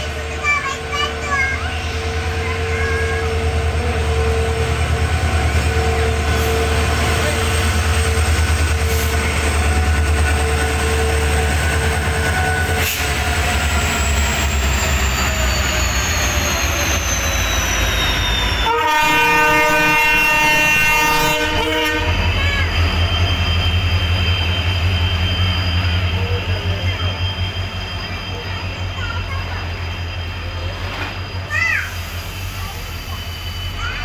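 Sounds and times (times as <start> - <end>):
diesel locomotives rumbling: 0.0 - 34.0
freight wagons rumbling on rails: 0.0 - 34.0
train horn blast: 2.0 - 8.2, 18.6 - 22.4.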